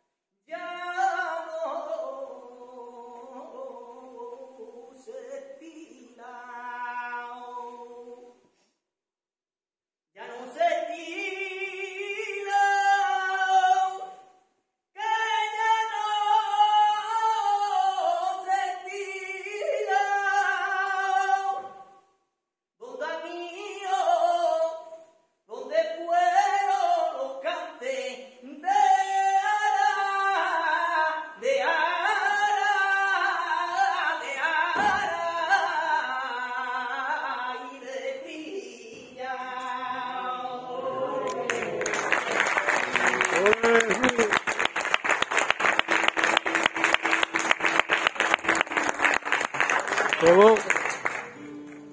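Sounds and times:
man singing flamenco: 10.2 - 14.1, 15.0 - 21.8, 22.8 - 24.8, 25.5 - 39.9.

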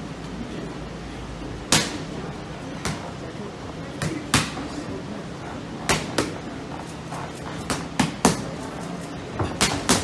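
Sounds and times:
boxing gloves smacking pads: 5.8 - 6.4, 7.4 - 8.7, 9.4 - 10.0.

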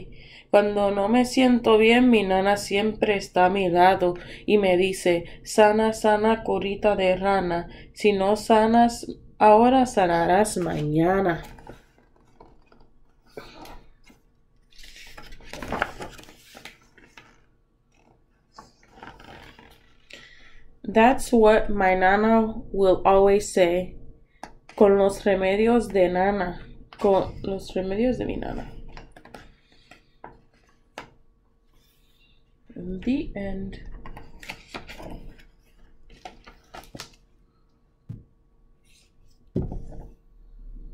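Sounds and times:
book pages rustling: 10.5 - 20.1, 28.5 - 32.2, 34.0 - 37.3.

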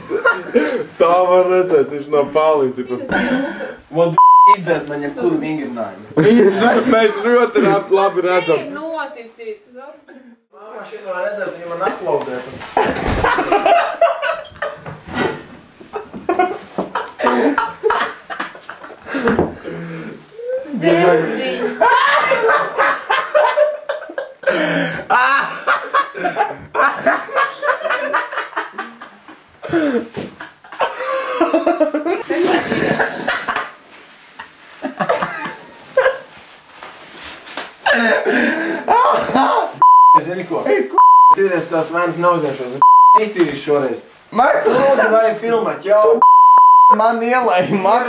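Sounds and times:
people laughing: 0.0 - 0.9, 12.8 - 19.6, 21.1 - 33.8, 34.8 - 36.3
low rustling hiss: 10.6 - 19.2, 25.6 - 38.8, 39.6 - 48.0
people talking: 20.4 - 22.8, 38.9 - 48.0.

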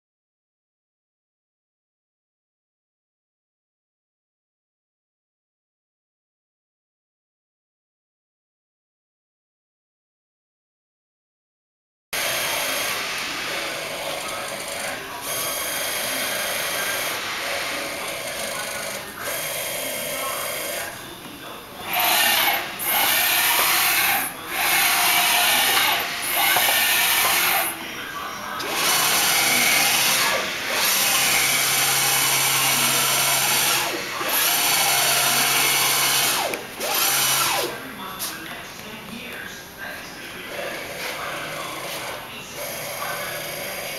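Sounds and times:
milling machine motor whir: 12.2 - 27.9, 28.5 - 37.9, 40.5 - 43.9.

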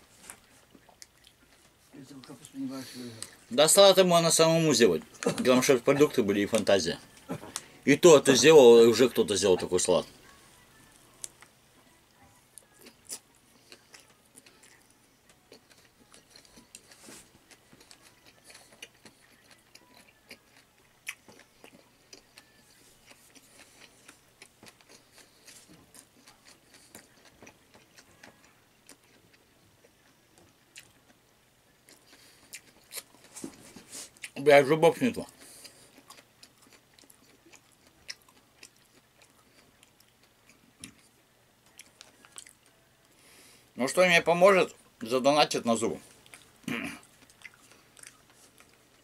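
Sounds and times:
man chewing: 0.1 - 1.9, 12.6 - 34.4, 35.2 - 43.6, 46.0 - 49.0.

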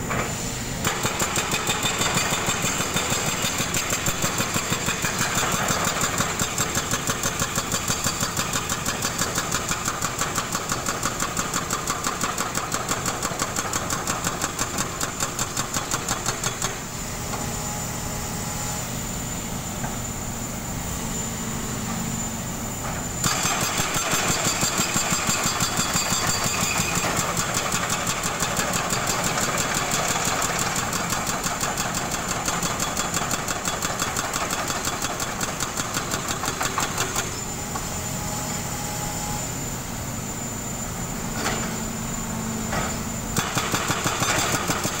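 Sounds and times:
hydraulic breaker hammering concrete: 0.8 - 17.5, 23.2 - 38.0, 42.6 - 45.0.

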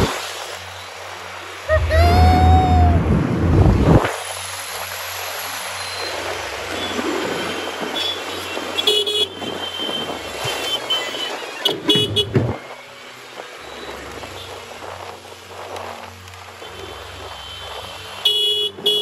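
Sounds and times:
vehicle horns honking: 7.5 - 12.5, 18.2 - 19.0.

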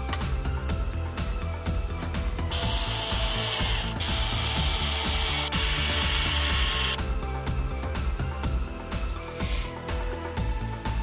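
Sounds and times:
background music with steady beat: 0.0 - 11.0
cordless drill driving screws: 2.5 - 7.0.

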